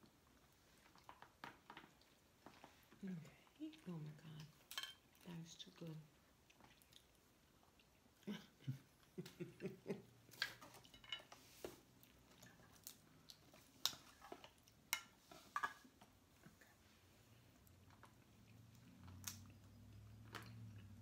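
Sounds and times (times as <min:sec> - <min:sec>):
clatter of eating utensils: 0:04.6 - 0:05.1, 0:10.4 - 0:11.4.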